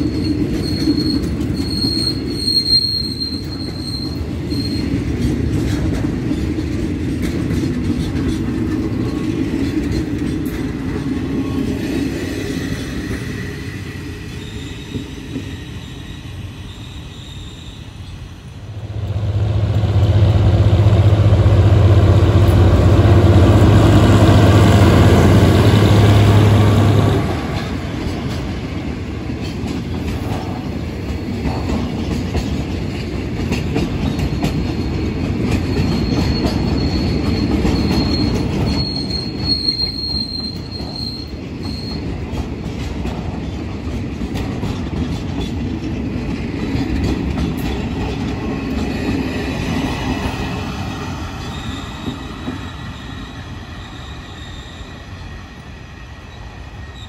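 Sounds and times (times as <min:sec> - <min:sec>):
boxcars rolling with rail clatter: 0:00.0 - 0:16.1, 0:18.5 - 0:57.0
diesel locomotive engine drone: 0:00.0 - 0:57.0
thin wheel squeal: 0:00.1 - 0:04.9, 0:35.7 - 0:42.0.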